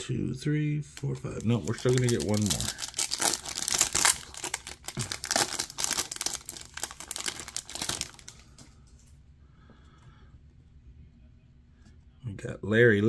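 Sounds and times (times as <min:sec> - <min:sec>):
foil wrapper crinkling and tearing: 0:01.0 - 0:08.6.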